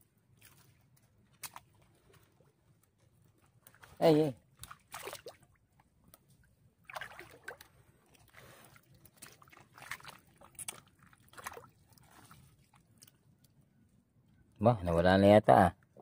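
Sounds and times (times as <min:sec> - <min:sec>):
river water sloshing and trickling: 0:00.0 - 0:14.5
short splashes: 0:03.6 - 0:05.6, 0:06.8 - 0:13.1.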